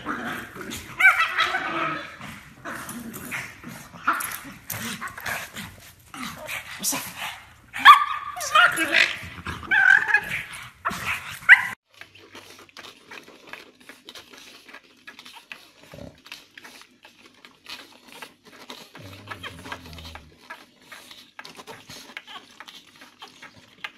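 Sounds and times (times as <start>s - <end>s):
dog barking and yipping: 0.9s - 2.2s, 7.7s - 11.8s
puppies suckling clicks: 10.0s - 23.9s.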